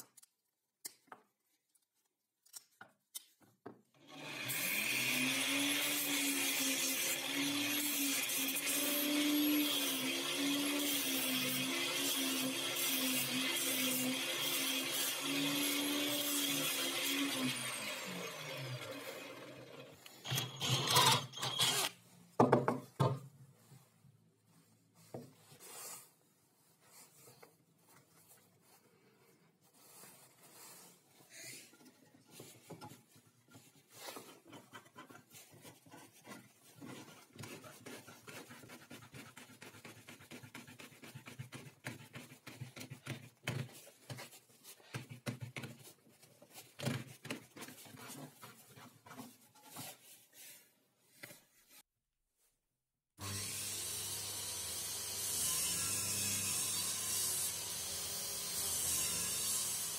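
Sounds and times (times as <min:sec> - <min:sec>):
drill boring through wood: 0:04.0 - 0:22.0, 0:53.2 - 0:59.9.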